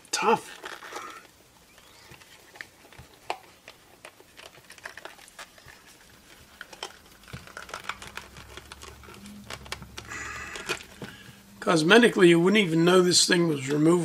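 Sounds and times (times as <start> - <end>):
plastic cover clicks and creaks: 0.4 - 11.4.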